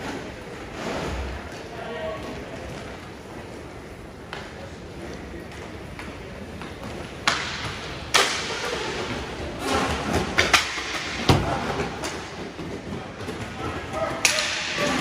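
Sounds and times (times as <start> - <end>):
rink background noise: 0.0 - 15.0
hockey sticks and puck cracks: 5.5 - 15.0.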